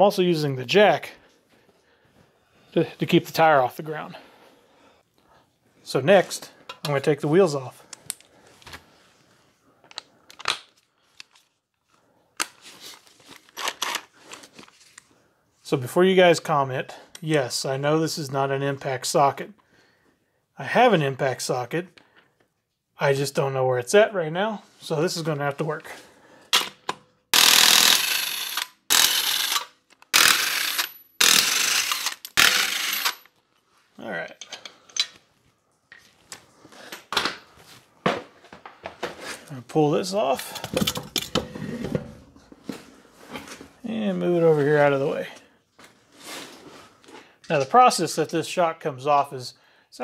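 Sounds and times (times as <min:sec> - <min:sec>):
impact wrench hammering lug nuts: 0:26.6 - 0:33.2.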